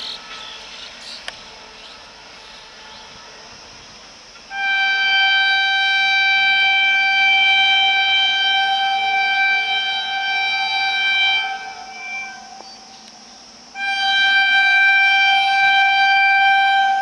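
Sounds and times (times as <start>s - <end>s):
locomotive air horn blast: 4.5s - 17.0s.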